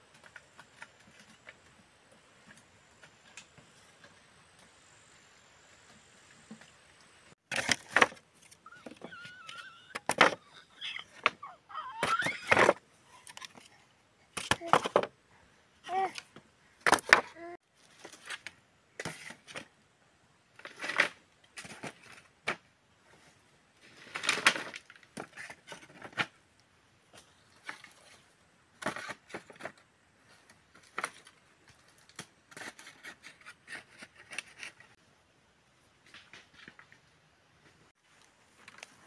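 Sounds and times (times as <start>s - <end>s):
rustle: 0.0s - 39.0s
voice-like call with bending pitch: 8.6s - 12.6s.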